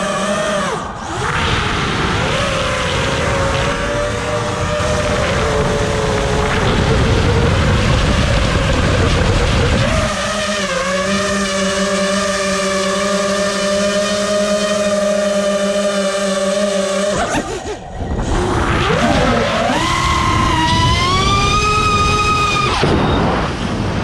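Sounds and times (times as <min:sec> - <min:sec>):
rushing noise: 0:00.0 - 0:10.2
quadcopter motors whining: 0:00.0 - 0:24.0.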